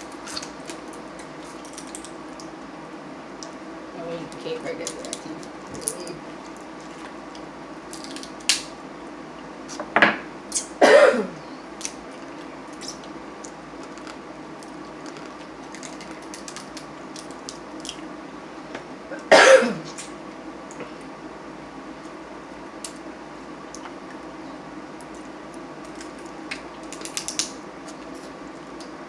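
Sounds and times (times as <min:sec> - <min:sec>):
crab shells cracking: 0:00.0 - 0:02.6, 0:06.6 - 0:08.7, 0:13.4 - 0:18.0, 0:25.0 - 0:28.9
faint steady hum: 0:00.0 - 0:29.0.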